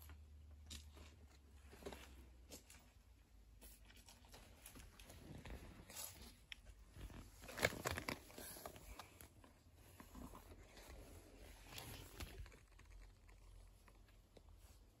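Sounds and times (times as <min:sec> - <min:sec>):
rustling and clicking handling: 0:00.1 - 0:15.0
crackles: 0:10.1 - 0:15.0.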